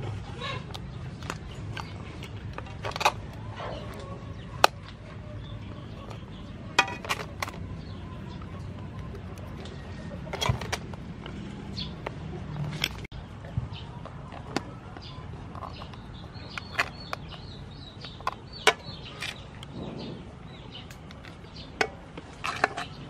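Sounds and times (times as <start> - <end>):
metal tongs clicking and scraping: 5.9 - 13.1.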